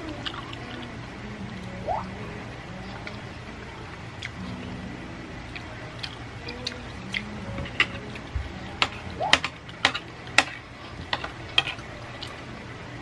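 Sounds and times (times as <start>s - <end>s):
chewing noodles: 0.0s - 0.9s.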